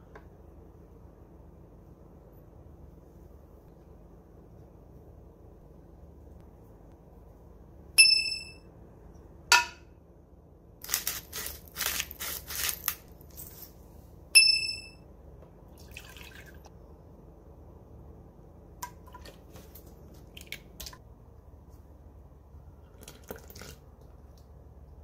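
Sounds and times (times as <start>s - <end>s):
short bright ding: 8.0s - 8.6s, 14.4s - 15.0s
spoon scraping and rustling: 10.8s - 13.9s.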